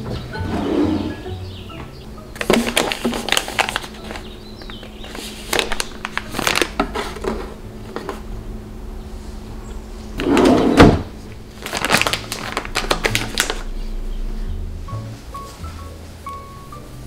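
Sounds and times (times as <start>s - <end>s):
plastic packet crinkling: 2.4s - 7.4s, 11.4s - 13.7s.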